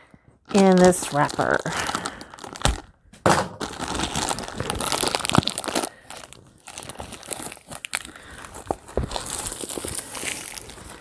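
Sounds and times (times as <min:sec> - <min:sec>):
packaging wrapper crinkling: 0:00.5 - 0:11.0.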